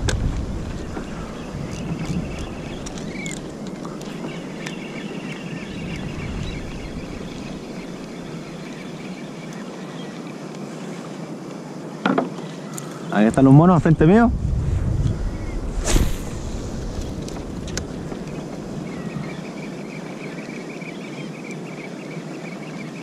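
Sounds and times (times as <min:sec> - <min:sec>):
sea noise: 0:00.0 - 0:23.0
wind: 0:00.0 - 0:23.0
faint high whine: 0:04.0 - 0:23.0
low rumble: 0:13.8 - 0:19.6.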